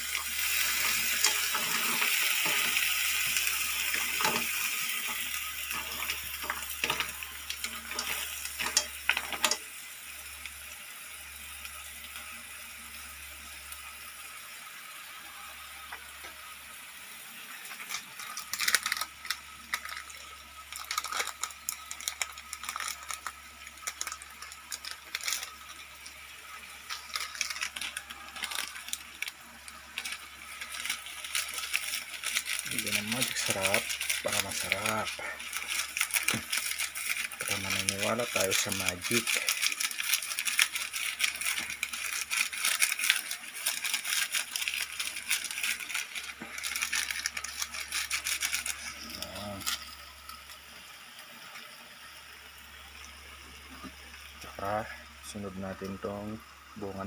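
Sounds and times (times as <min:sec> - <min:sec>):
faint sizzle: 0:00.0 - 0:57.0
mussel shells clicking in pan: 0:00.4 - 0:09.7, 0:17.7 - 0:26.2, 0:26.8 - 0:50.6.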